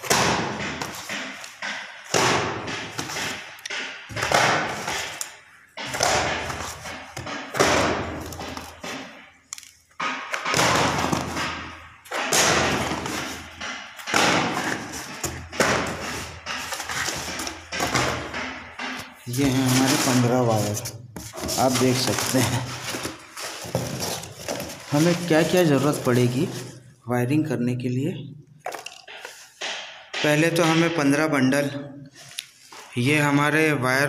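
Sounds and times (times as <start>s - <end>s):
boxes thumping down: 0.0s - 5.2s, 5.8s - 9.2s, 10.0s - 26.9s
cardboard scraping: 12.3s - 26.9s.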